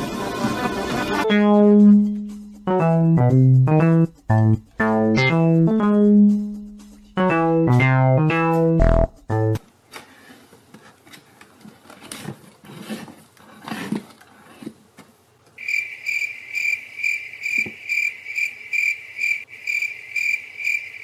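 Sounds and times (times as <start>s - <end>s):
cricket chirping: 15.6s - 21.0s.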